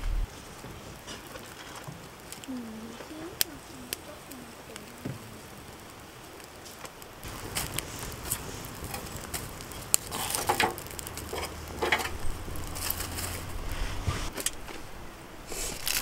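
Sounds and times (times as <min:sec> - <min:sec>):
low steady hum: 0:00.0 - 0:00.3
small fire crackling: 0:00.0 - 0:16.0
twigs snapping and rustling: 0:05.8 - 0:13.7, 0:15.6 - 0:16.0.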